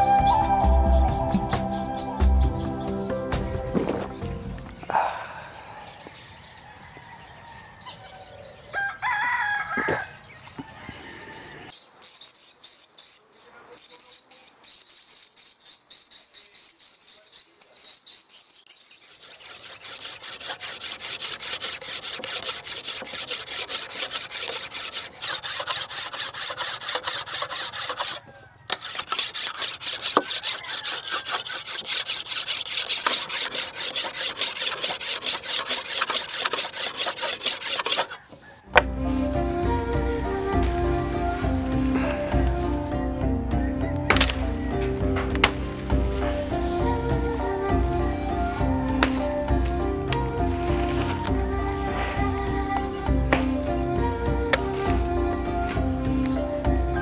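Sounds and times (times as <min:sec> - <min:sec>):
rooster crowing: 0:04.9 - 0:11.7, 0:30.2 - 0:31.7, 0:38.0 - 0:42.9
file scraping knife blade: 0:18.8 - 0:38.2, 0:48.5 - 0:49.4.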